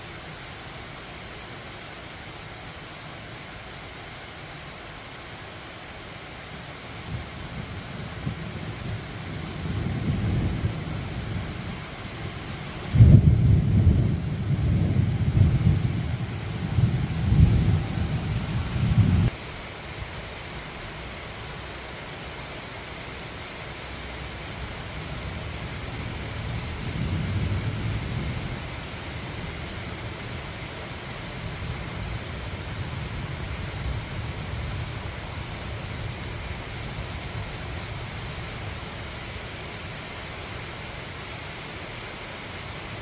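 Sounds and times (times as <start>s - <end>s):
steady rain falling: 0.0s - 43.0s
low rolling thunder: 7.1s - 19.4s, 24.9s - 30.6s.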